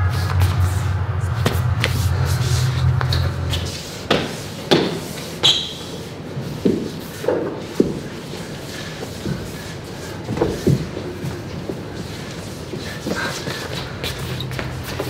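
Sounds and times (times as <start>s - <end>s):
low steady drone: 0.0s - 5.4s
shoe squeak: 5.4s - 6.0s.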